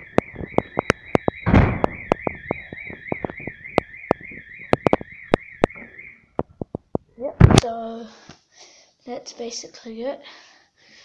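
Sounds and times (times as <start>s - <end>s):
fire alarm warbling tone: 0.0s - 6.6s
thump: 1.4s - 2.0s.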